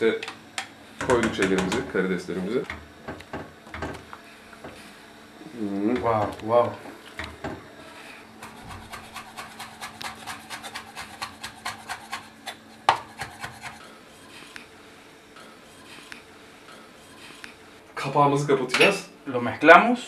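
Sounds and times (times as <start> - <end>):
knife chopping on wooden board: 8.4 - 13.8.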